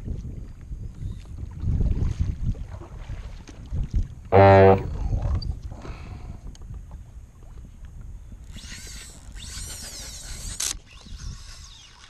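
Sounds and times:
water lapping against kayak: 1.0 - 4.9
fishing reel whining: 8.5 - 12.0.

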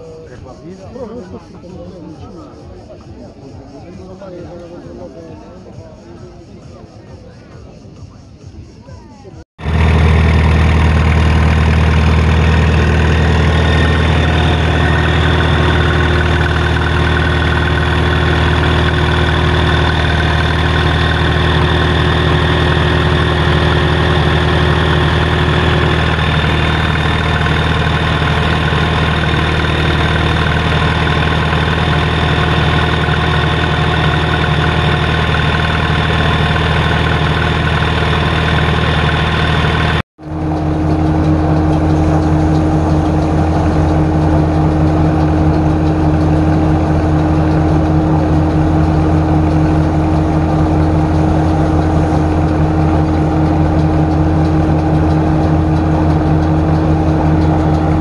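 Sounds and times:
threshing machine whirring: 9.6 - 58.0
tractor engine running: 9.6 - 58.0.

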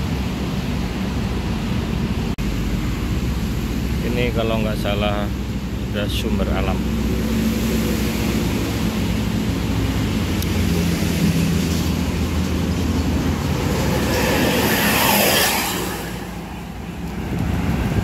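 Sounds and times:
coach engine passing: 4.7 - 18.0
tyres rushing: 8.5 - 18.0.

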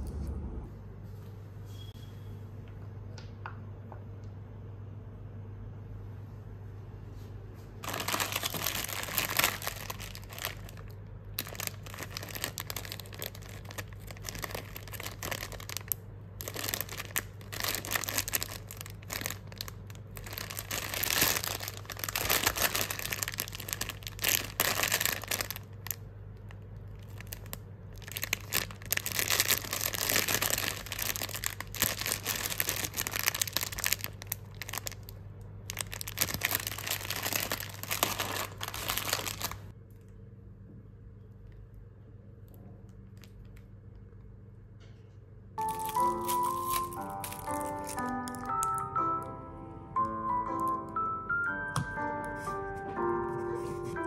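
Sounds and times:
steady low hum: 0.0 - 48.3
plastic bag crinkling: 7.8 - 39.7, 45.6 - 48.9.

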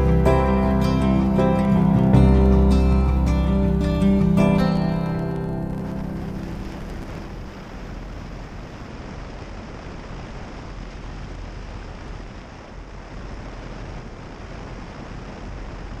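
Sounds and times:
wind rushing: 0.0 - 10.6.

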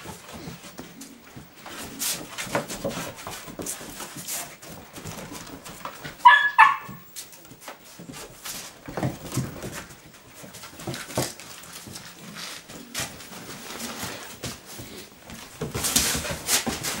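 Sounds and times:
dogs scuffling: 0.0 - 17.0
dog sounds: 6.1 - 7.1.

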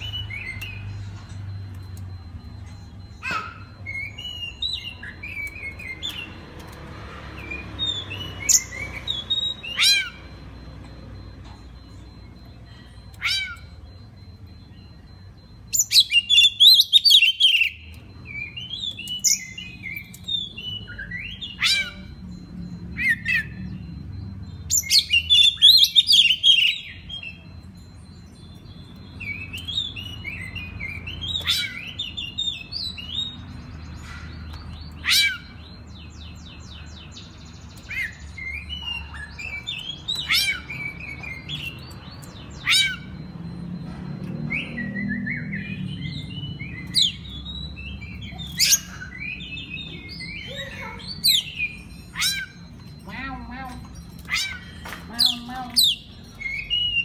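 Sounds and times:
bird singing whistled chirps: 44.4 - 53.1, 54.2 - 57.0
rapid trilled bird phrases: 45.4 - 57.0.

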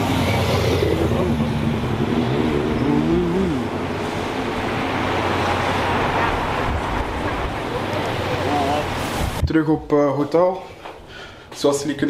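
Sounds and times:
cars driving past: 0.0 - 9.4.

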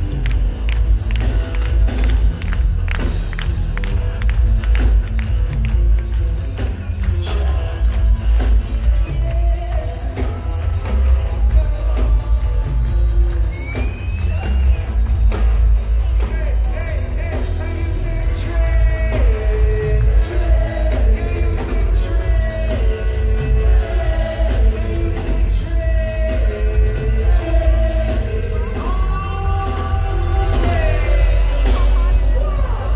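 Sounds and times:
heavy bass line: 0.0 - 32.9
live reggae band playing: 0.0 - 32.9
person singing: 16.1 - 32.9.

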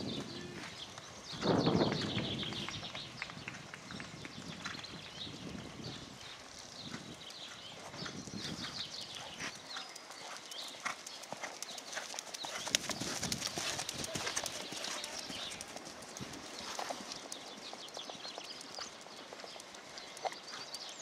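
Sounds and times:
horse hooves trotting on sand: 0.0 - 21.0.

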